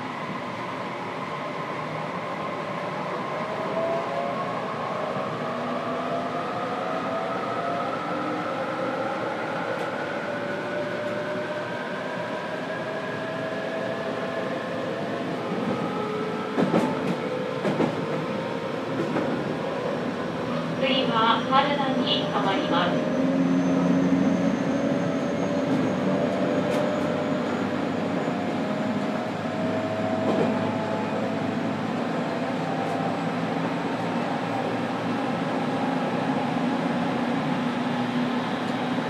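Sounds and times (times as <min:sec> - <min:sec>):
train running rumble: 0:16.6 - 0:18.3, 0:25.6 - 0:39.0.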